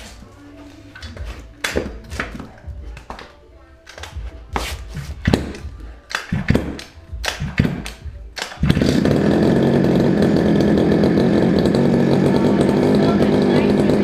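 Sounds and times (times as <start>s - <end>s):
two-stroke engine running: 8.6s - 14.0s.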